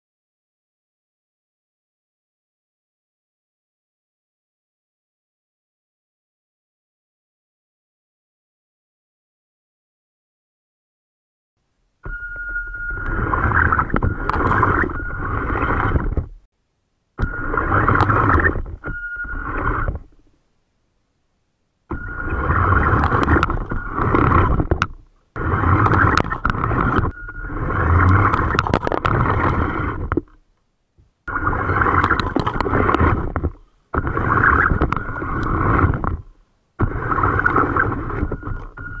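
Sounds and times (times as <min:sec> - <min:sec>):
toy tank motors whining: 0:12.1 - 0:16.3, 0:17.2 - 0:20.2, 0:21.9 - 0:30.4, 0:31.3 - 0:39.0
tracks and gears rattling: 0:21.9 - 0:30.3.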